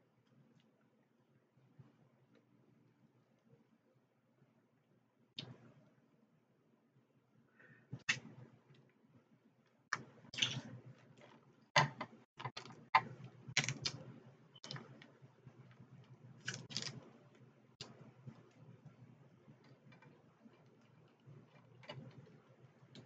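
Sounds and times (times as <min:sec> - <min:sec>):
crab shells cracking: 0:12.4 - 0:15.1, 0:16.4 - 0:17.0.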